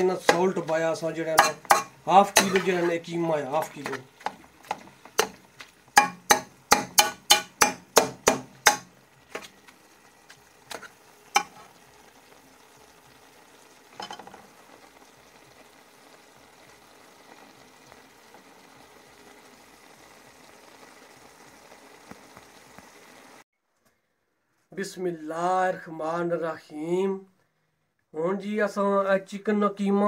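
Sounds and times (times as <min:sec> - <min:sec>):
spoon knocking pan: 0:00.0 - 0:02.9, 0:03.6 - 0:09.6, 0:10.7 - 0:11.7, 0:14.0 - 0:14.4
faint sizzle from pan: 0:00.0 - 0:23.5
metal spoon scraping metal pan: 0:01.3 - 0:03.1, 0:10.7 - 0:11.7.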